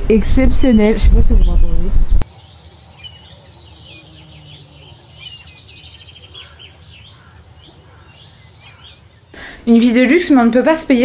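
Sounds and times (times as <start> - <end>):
low outdoor rumble: 0.0 - 2.2
small birds chirping: 0.3 - 11.0.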